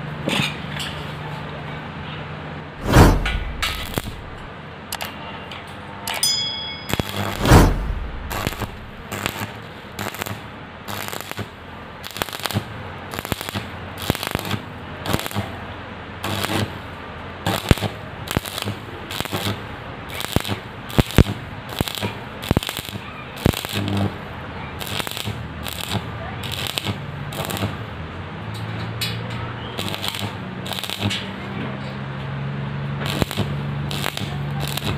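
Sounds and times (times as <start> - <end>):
welding arc crackling and popping: 2.8 - 4.5, 6.9 - 15.5, 16.2 - 27.9, 29.8 - 31.4, 33.0 - 34.9.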